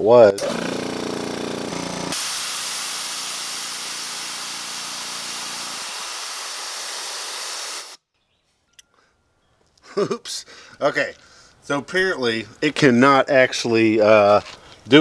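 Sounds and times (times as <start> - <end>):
air compressor motor hum: 0.4 - 8.0
safety valve venting air hiss: 2.1 - 8.0.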